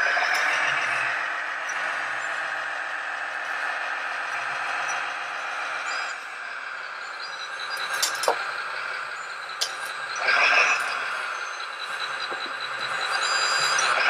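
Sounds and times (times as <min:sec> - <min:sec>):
toy motor whir: 0:09.6 - 0:11.0.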